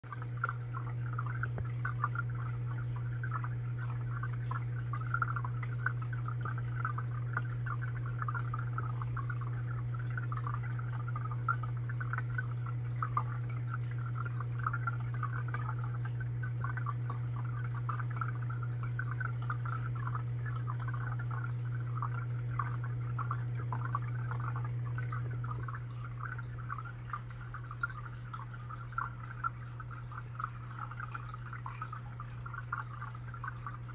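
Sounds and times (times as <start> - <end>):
aquarium water trickling and bubbling: 0.0 - 33.9
low hum: 0.0 - 33.9.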